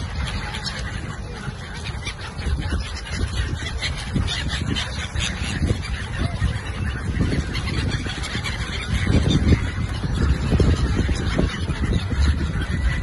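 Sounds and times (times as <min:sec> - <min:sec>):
gulls calling: 0:00.0 - 0:13.0.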